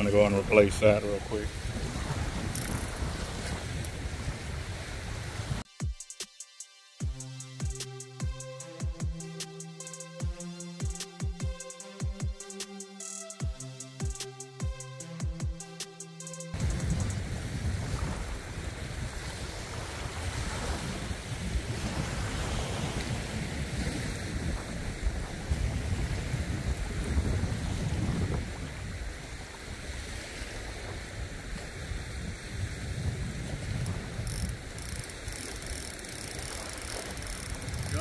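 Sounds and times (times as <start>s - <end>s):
wind buffeting microphone: 0.0s - 5.6s, 16.6s - 38.0s
music: 5.7s - 17.2s.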